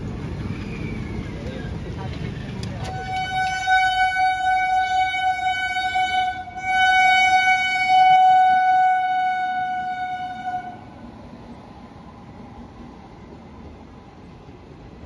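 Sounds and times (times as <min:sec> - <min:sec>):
passing train rumble: 0:00.0 - 0:15.0
train horn blast: 0:02.8 - 0:10.9.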